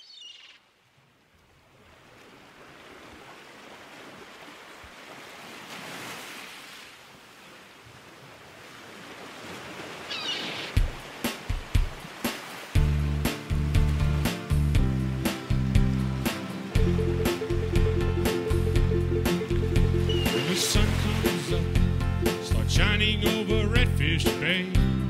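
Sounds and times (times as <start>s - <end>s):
ocean surf washing in: 9.2s - 22.6s
high chirps: 16.8s - 21.2s.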